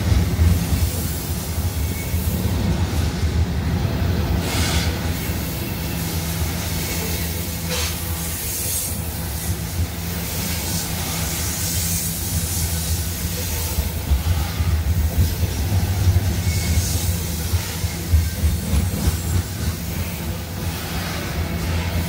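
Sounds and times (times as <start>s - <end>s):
freight train rumbling on bridge: 0.0s - 22.0s
train wheels rasping: 0.0s - 22.0s.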